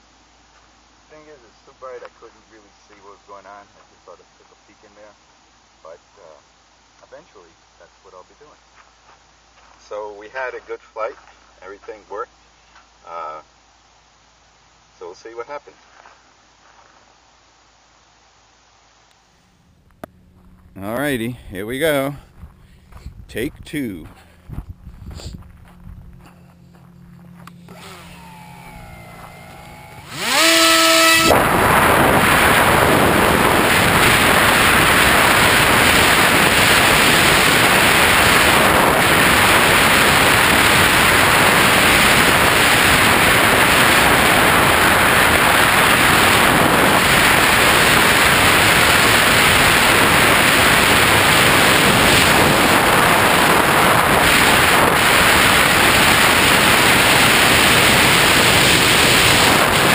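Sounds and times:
electric motor whine: 26.8s - 59.9s
wind and propeller rush: 27.8s - 59.9s.

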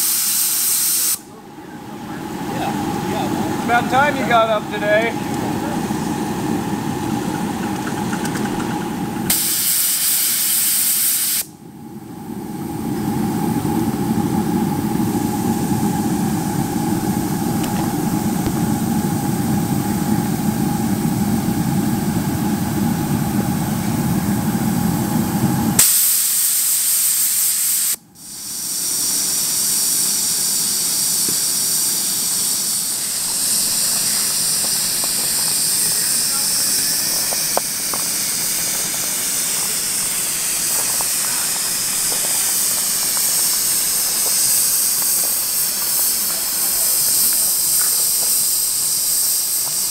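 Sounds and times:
sharp burst of steam: 0.0s - 11.6s, 12.2s - 49.9s
steam locomotive hissing: 0.0s - 49.9s
low hum: 1.2s - 9.3s, 11.5s - 25.8s.

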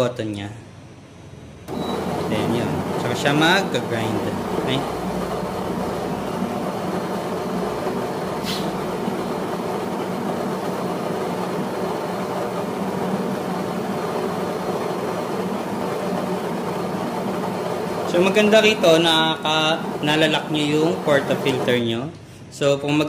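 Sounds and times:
coffee grinder grinding beans: 1.9s - 21.8s.

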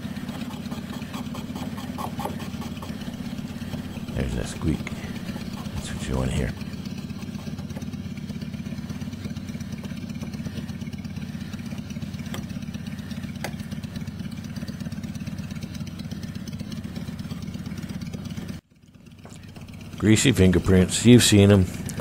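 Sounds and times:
engine idling: 0.0s - 22.0s.

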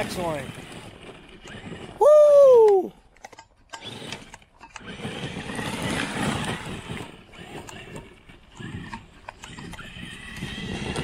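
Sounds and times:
tires churning snow: 0.0s - 3.1s, 3.7s - 11.0s
electric motor whining: 3.7s - 11.0s.

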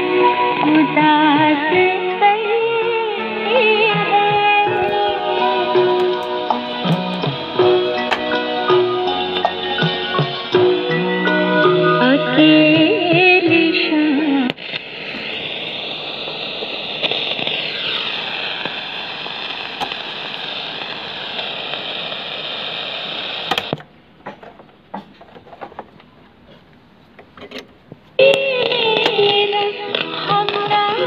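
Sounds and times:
music from radio: 0.0s - 23.8s, 28.2s - 31.0s
radio static hiss: 0.5s - 24.5s, 28.1s - 31.0s
radio switch clicks: 4.3s - 8.4s, 19.7s - 20.2s, 23.4s - 23.9s.

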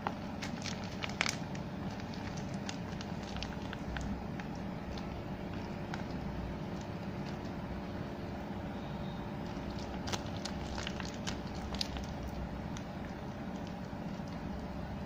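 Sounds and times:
plastic wrapping crinkling: 0.0s - 8.0s, 9.4s - 15.0s
low background hum: 0.0s - 15.0s.

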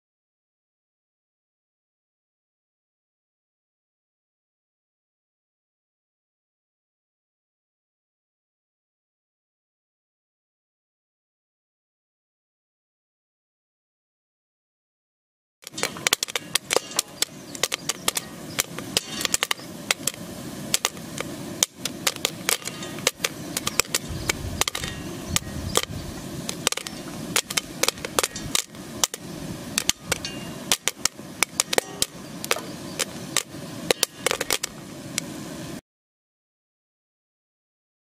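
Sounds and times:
popcorn popping: 15.6s - 35.3s
steady hiss: 15.6s - 35.8s.

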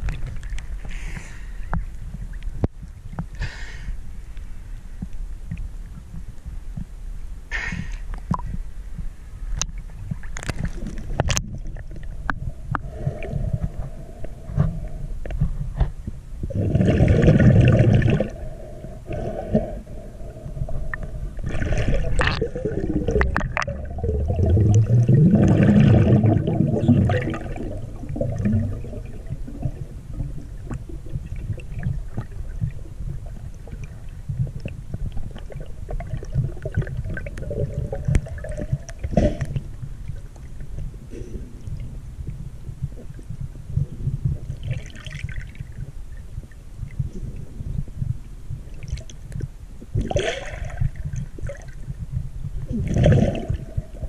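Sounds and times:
lake water sloshing and gurgling: 16.5s - 40.8s, 43.1s - 47.4s, 49.9s - 52.0s, 52.7s - 54.0s.

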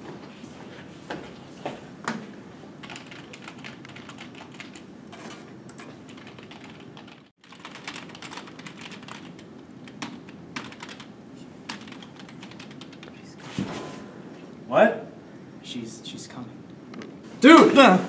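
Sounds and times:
fast typing on keyboard: 2.8s - 4.8s, 5.8s - 11.1s, 11.7s - 13.3s.

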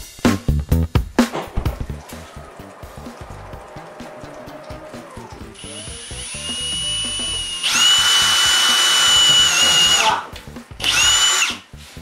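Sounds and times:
cordless drill whining: 2.2s - 11.7s.

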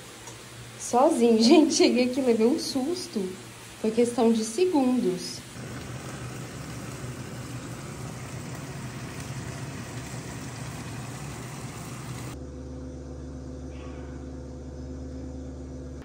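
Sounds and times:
steady mechanical hum: 0.0s - 16.0s
rushing hiss: 2.2s - 12.4s.

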